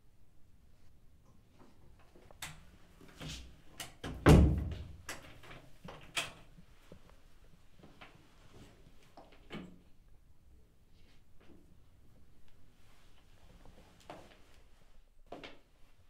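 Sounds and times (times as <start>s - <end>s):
door shutting with thud: 4.0s - 4.9s.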